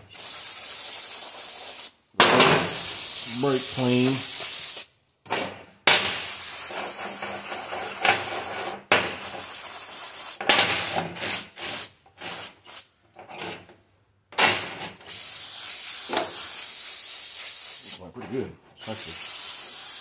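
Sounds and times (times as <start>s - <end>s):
aerosol spray hissing: 0.0s - 2.0s, 2.6s - 4.9s, 6.2s - 12.9s, 15.1s - 18.1s, 18.8s - 20.0s.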